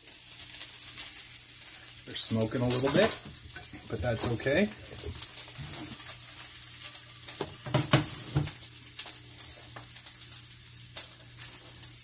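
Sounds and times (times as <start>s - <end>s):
meat sizzling in a frying pan: 0.0s - 12.0s
pan knocking on stovetop: 7.4s - 8.6s.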